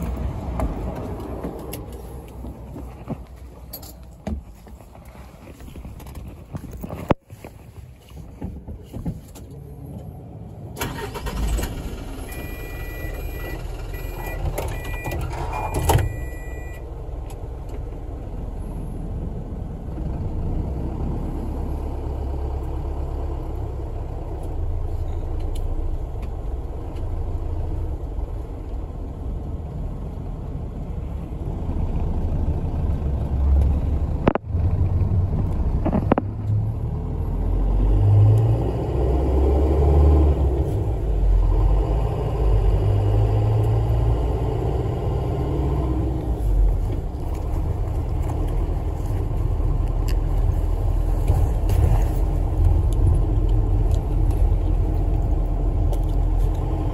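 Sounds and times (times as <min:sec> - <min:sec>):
bus engine rumbling: 0:00.0 - 0:56.9
electronic beeps: 0:12.3 - 0:16.8.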